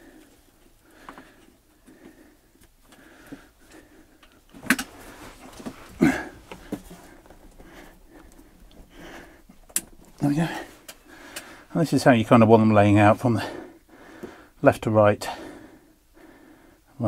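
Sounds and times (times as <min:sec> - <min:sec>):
faint rustling: 0:00.0 - 0:12.6.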